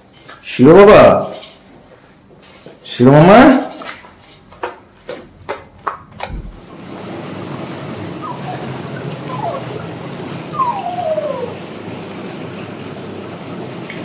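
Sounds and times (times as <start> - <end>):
dog whimpering: 8.0 - 12.8.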